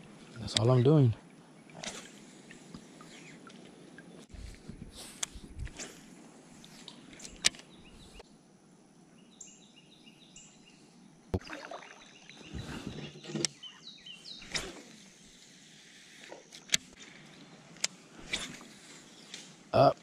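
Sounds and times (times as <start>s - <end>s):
bird singing: 6.9s - 8.2s, 9.1s - 14.6s.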